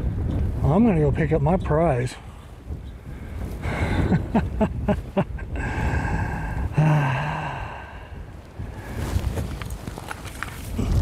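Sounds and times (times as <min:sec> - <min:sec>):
man breathing hard: 0:02.2 - 0:04.1, 0:05.5 - 0:09.3
man sighing: 0:05.5 - 0:08.3.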